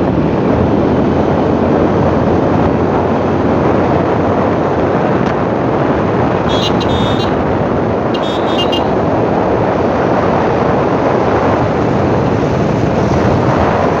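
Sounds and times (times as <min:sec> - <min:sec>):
vehicle horn blasts: 0:06.5 - 0:07.4, 0:08.1 - 0:09.0
motorbike engine: 0:06.5 - 0:09.2.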